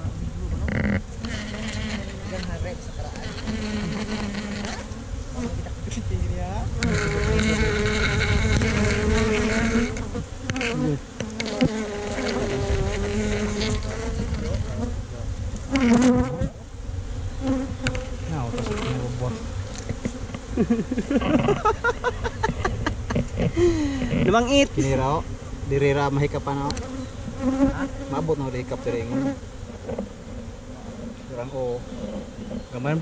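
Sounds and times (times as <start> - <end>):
bees buzzing: 0.0 - 33.0.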